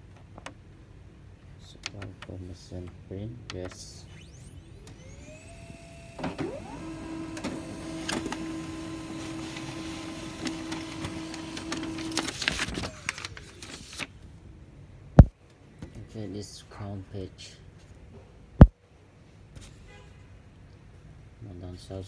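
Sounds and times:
laser printer motors whining: 0:04.0 - 0:13.1.

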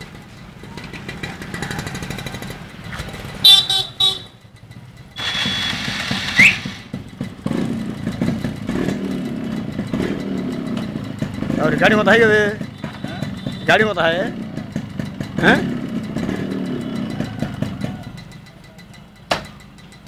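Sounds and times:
motorcycle engines running: 0:00.0 - 0:20.0
motorcycle horn beeps: 0:03.4 - 0:04.5, 0:05.2 - 0:07.0, 0:12.6 - 0:14.0
loud engine: 0:05.2 - 0:13.1.

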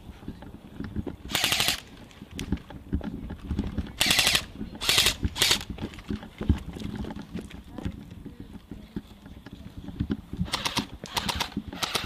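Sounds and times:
airsoft gun firing bursts: 0:01.3 - 0:01.8, 0:04.0 - 0:05.6, 0:10.4 - 0:12.0.

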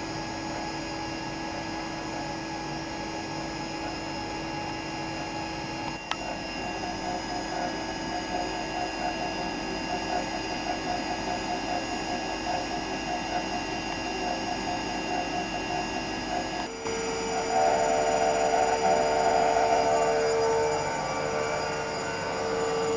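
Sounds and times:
spray dryer humming and ticking: 0:05.2 - 0:22.9.

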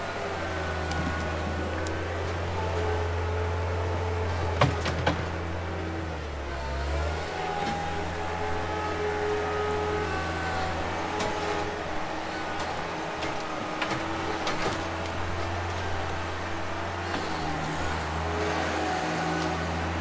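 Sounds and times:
diesel engines running: 0:00.0 - 0:20.0.

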